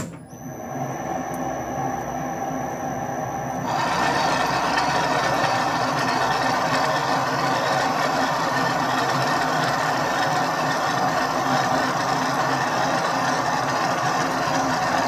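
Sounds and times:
high whine: 0.0 - 10.2
lathe tool cutting metal: 3.6 - 15.0
metal lathe running: 3.6 - 15.0.

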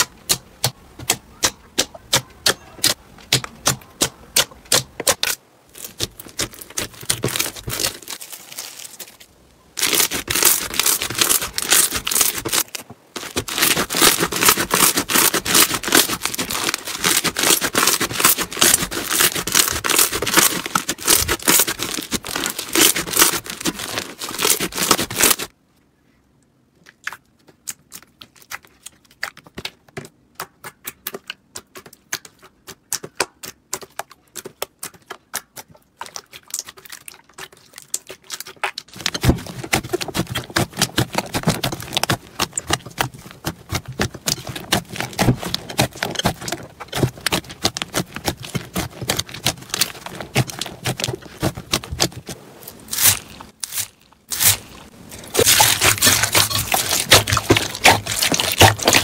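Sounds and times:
crunchy slime crackling: 4.7 - 25.5, 36.0 - 59.0.

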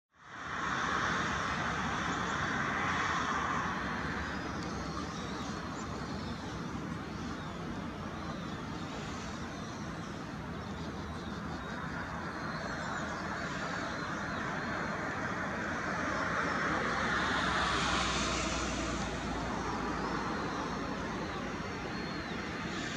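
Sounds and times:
distant traffic hum: 0.2 - 22.9
faint high chirping calls: 18.9 - 22.9.

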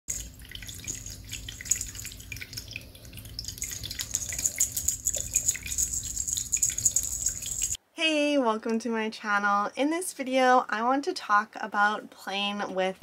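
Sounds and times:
faint steady hum: 0.1 - 13.0
cat batting feather toy: 3.6 - 7.8.

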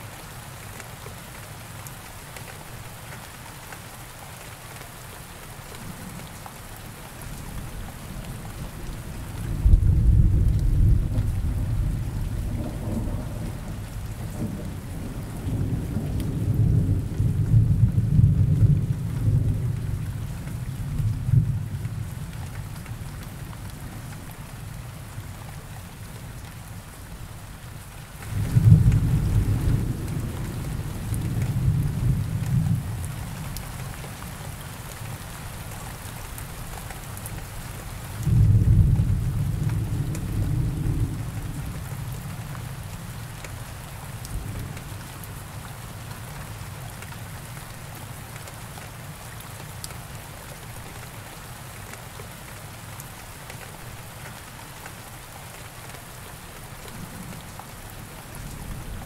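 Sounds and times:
steady rain: 0.0 - 59.0
thunder rumbling: 8.9 - 20.0, 28.3 - 33.1, 38.2 - 42.2.

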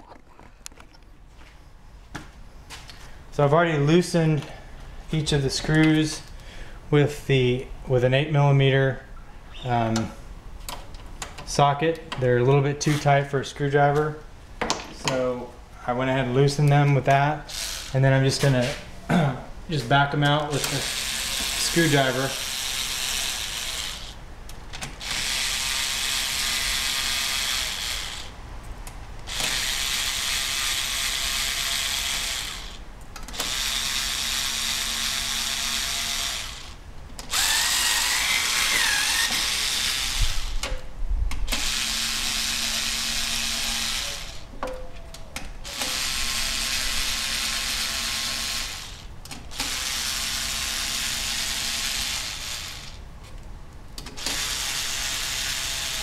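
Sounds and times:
cordless drill running: 17.5 - 18.0, 20.6 - 24.2, 25.0 - 28.4, 29.3 - 40.6, 41.5 - 44.4, 45.7 - 53.0, 54.2 - 56.0.

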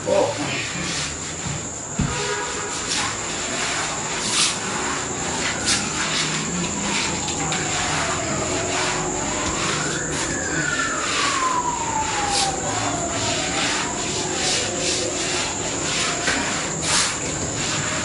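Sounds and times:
steady hiss: 0.0 - 18.0
cloth rubbing on vinyl floor: 0.1 - 18.0
rising and falling whine: 4.7 - 17.8.

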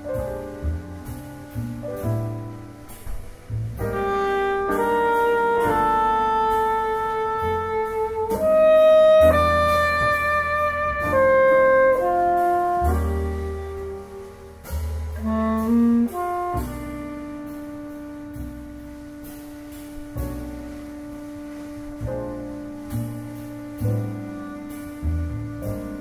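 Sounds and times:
drums with cymbal strokes: 0.0 - 26.0
piano: 0.0 - 26.0
upright bass: 0.0 - 26.0
alto saxophone melody: 3.8 - 26.0.

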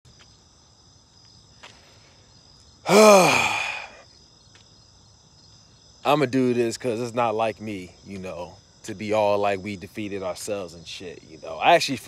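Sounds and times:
crickets chirring: 0.0 - 12.0
man sighing: 2.8 - 4.0.

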